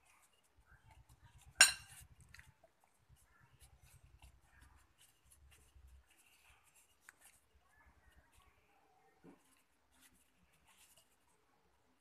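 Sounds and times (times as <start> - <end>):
spoon scraping in glass bowl: 1.2 - 2.5
spoon clinking against glass: 1.6 - 2.0.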